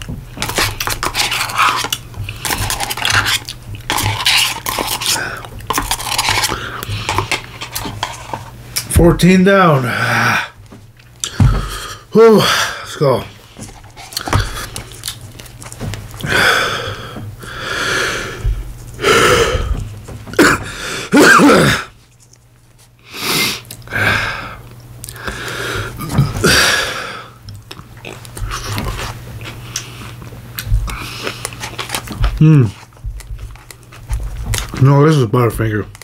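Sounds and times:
man huffing and exhaling: 16.2s - 22.0s
mouth noises eating: 23.2s - 34.8s.

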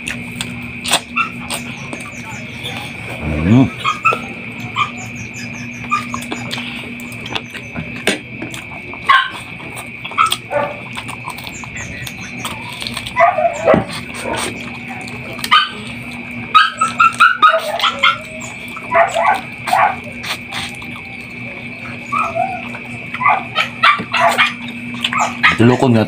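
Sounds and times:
chewing meat off bone: 0.0s - 26.0s
dog whining and yipping: 1.2s - 6.5s, 11.8s - 14.4s, 16.5s - 20.0s, 22.0s - 25.6s.

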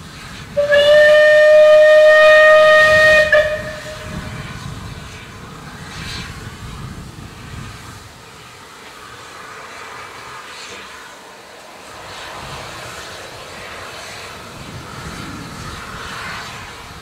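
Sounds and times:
steam locomotive whistle: 0.5s - 4.7s.

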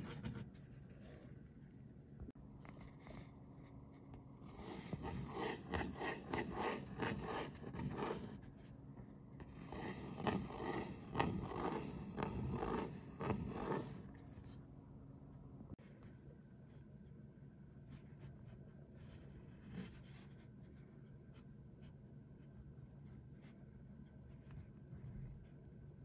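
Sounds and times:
pen nib scratching on paper: 4.4s - 8.5s, 9.4s - 14.1s.

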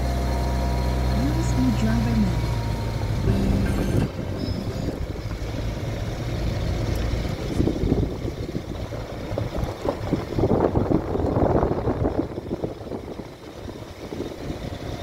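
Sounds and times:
low steady hum: 1.1s - 8.4s
wind buffeting microphone: 3.6s - 15.0s.

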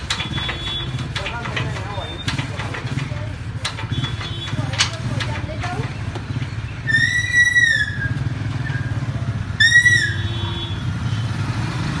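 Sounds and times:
diesel engine running: 0.0s - 12.0s
loud high whistles: 6.8s - 9.0s, 9.6s - 10.3s.

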